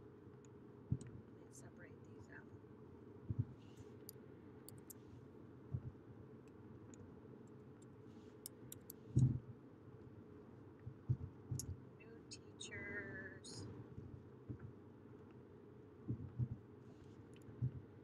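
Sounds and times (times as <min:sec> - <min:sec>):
dull low thumps: 0:03.3 - 0:03.6, 0:16.1 - 0:16.6
mouse and keyboard clicks: 0:04.0 - 0:05.0, 0:07.8 - 0:09.3.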